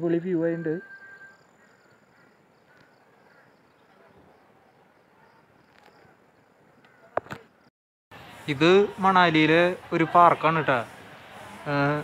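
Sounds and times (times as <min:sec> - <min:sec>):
thin high-pitched tone: 0:00.0 - 0:01.6.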